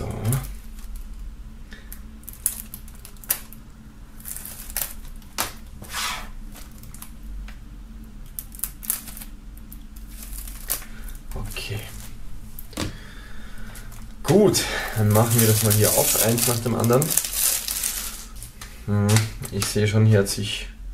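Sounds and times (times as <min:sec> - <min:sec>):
knife scratching plastic film: 0:15.0 - 0:19.7.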